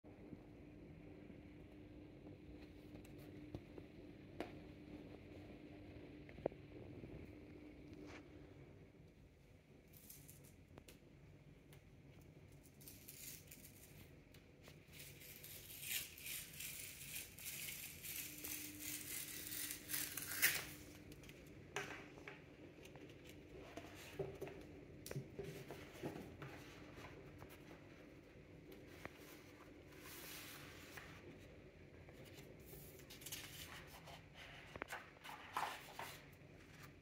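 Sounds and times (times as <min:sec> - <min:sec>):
cardboard envelope tear strip tearing: 0:15.0 - 0:21.0.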